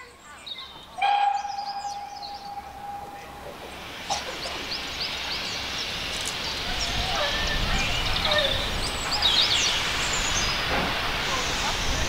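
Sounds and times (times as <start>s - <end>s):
small birds chirping: 0.0s - 10.7s
steam whistle blast: 1.0s - 3.4s
steam hissing: 1.0s - 12.0s.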